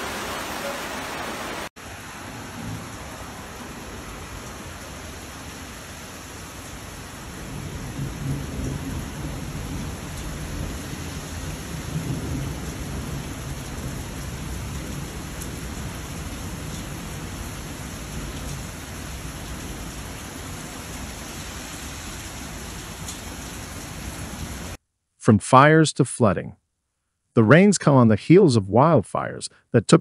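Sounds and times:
rushing floodwater: 0.0s - 7.2s
heavy rain: 0.0s - 24.8s.

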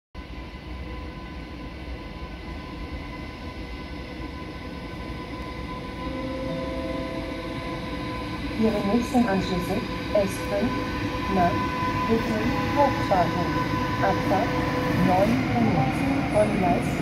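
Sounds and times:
electric locomotive rumble and hum: 0.2s - 17.0s
locomotive whining tones: 5.0s - 17.0s.

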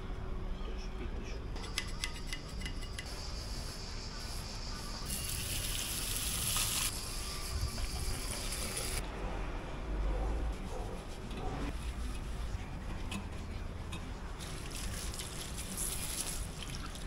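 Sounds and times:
hose spraying water: 4.6s - 9.0s, 14.4s - 17.0s.

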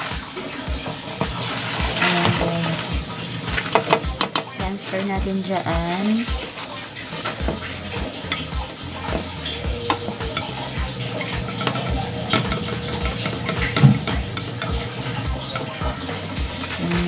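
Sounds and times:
metal strainer clicking and tapping: 7.5s - 16.8s.

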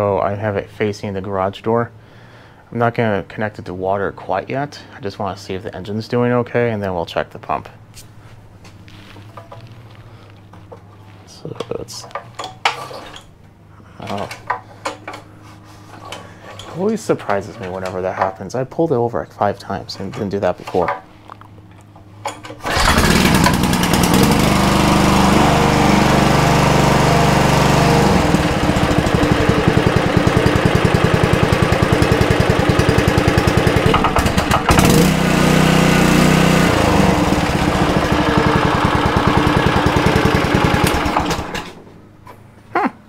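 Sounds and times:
single-cylinder engine running: 22.5s - 41.9s.

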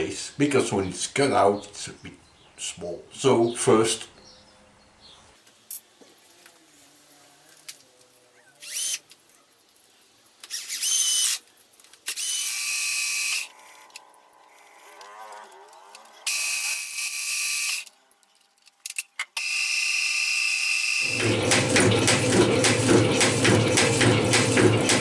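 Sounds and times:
drill drilling into steel: 8.6s - 9.0s, 10.5s - 11.4s, 12.1s - 13.5s, 16.3s - 17.9s, 19.4s - 22.2s.

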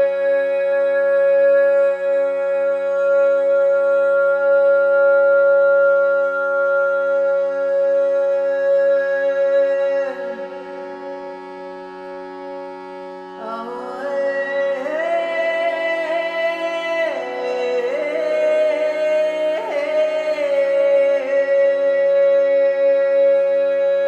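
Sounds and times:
wordless voice singing: 13.4s - 24.0s.

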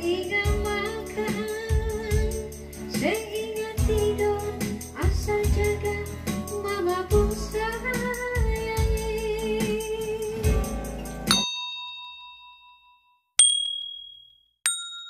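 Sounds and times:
woman singing: 0.0s - 10.6s
bright bell ding: 11.3s - 15.0s.

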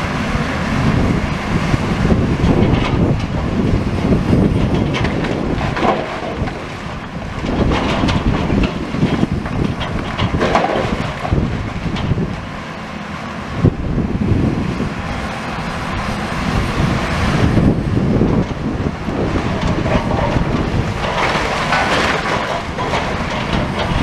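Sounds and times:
wind buffeting microphone: 0.0s - 12.6s, 13.5s - 24.0s
excavator engine under load: 0.0s - 24.0s
masonry breaking and falling: 9.4s - 11.4s, 20.2s - 24.0s.

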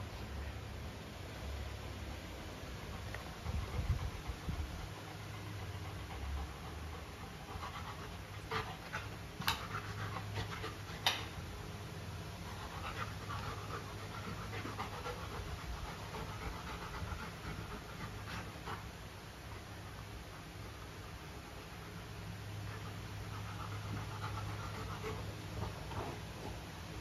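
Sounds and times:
dog panting: 2.8s - 11.4s, 12.4s - 19.6s, 21.6s - 26.7s.

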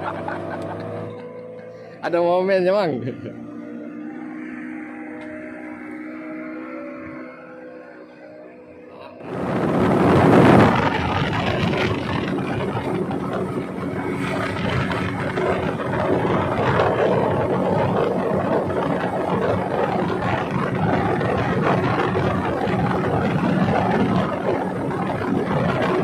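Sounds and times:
speedboat engine drone: 0.0s - 26.0s
rushing wind and water: 9.2s - 26.0s.

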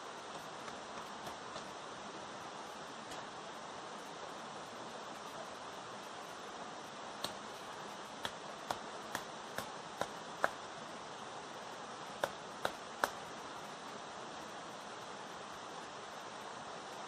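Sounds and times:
dry sticks snapping: 7.2s - 7.4s.

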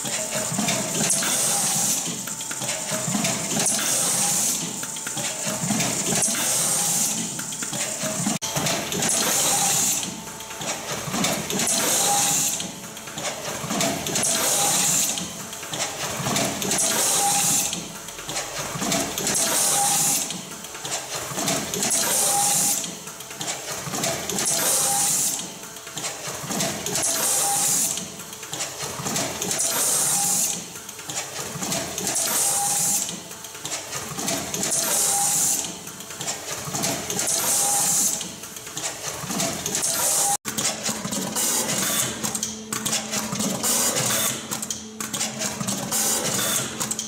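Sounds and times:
machine whine: 0.0s - 20.4s
machine hiss and clatter: 0.0s - 47.0s.

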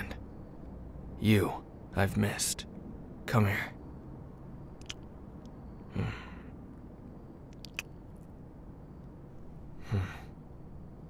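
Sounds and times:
low background hiss: 0.0s - 11.0s
mouth clicks: 4.8s - 5.1s, 7.5s - 8.0s
man sighing softly: 9.8s - 10.4s.

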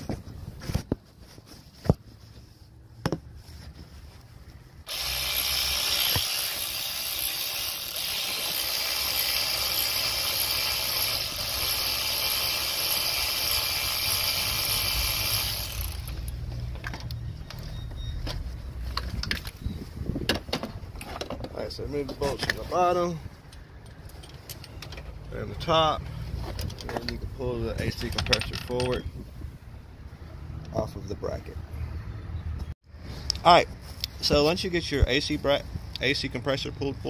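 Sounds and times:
power drill running: 4.9s - 16.2s.

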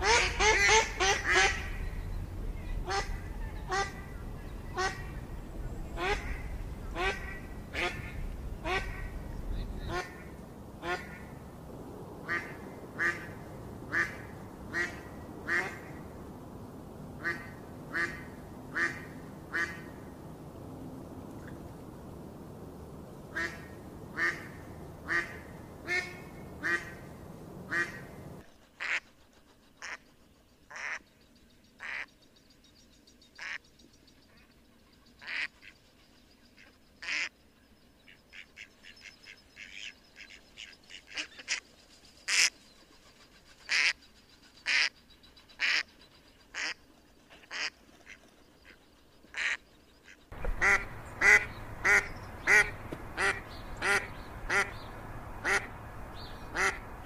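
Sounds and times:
waterfowl calling: 0.0s - 11.4s, 23.3s - 27.1s, 27.7s - 28.1s, 28.7s - 29.2s, 35.2s - 35.8s, 36.6s - 37.3s, 38.1s - 41.6s, 42.3s - 42.5s, 43.7s - 44.0s, 44.6s - 45.0s, 45.6s - 57.0s
steady background noise: 0.0s - 57.0s.

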